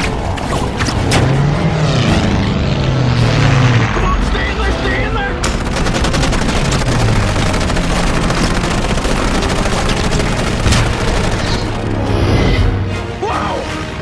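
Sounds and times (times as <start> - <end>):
machine-gun fire: 5.4 - 11.8.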